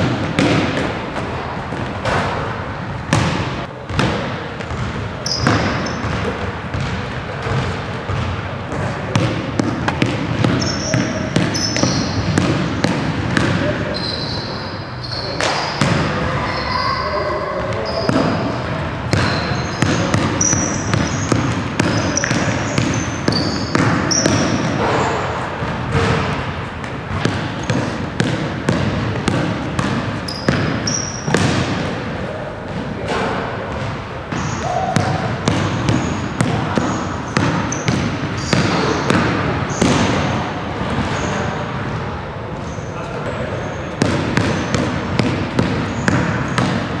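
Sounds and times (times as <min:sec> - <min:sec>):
basketball bouncing on hardwood: 0:03.1 - 0:13.6, 0:19.1 - 0:24.7, 0:27.1 - 0:31.8, 0:35.0 - 0:40.1, 0:44.0 - 0:46.9
sneaker squeaks: 0:04.6 - 0:32.0, 0:32.6 - 0:42.0, 0:42.6 - 0:47.0.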